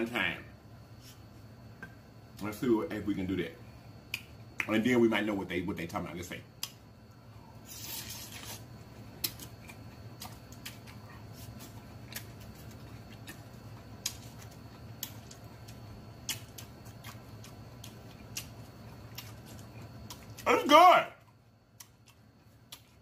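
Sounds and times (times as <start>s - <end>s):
low steady hum: 0.0s - 23.0s
chewing food: 7.7s - 20.5s, 21.2s - 23.0s
wet mouth clicks and crunches: 7.7s - 20.5s, 21.7s - 23.0s.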